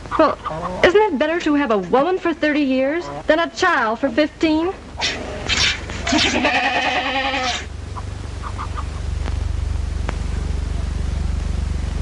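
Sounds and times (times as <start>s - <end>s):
low steady rumble: 0.0s - 12.0s
animal bleating: 6.0s - 7.7s.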